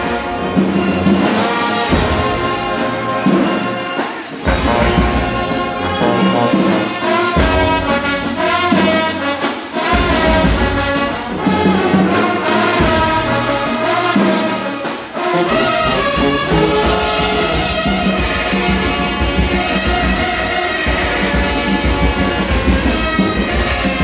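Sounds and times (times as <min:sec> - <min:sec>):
marching band playing: 0:00.0 - 0:24.0
bass drum: 0:04.4 - 0:06.5, 0:09.9 - 0:14.2
sousaphones playing bass phrases: 0:15.3 - 0:18.4.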